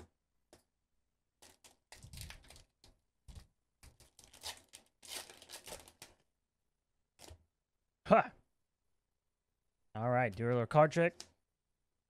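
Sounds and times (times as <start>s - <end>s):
foil wrapper tearing and crinkling: 1.4s - 2.8s, 4.0s - 6.2s.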